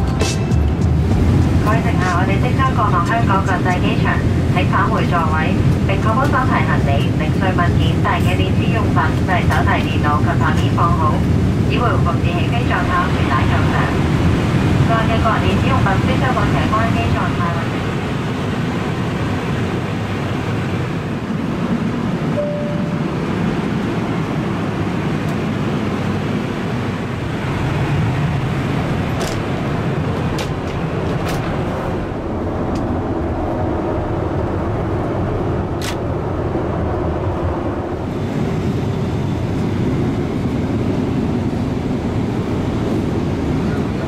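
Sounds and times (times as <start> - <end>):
airplane cabin engine drone: 0.0 - 44.0.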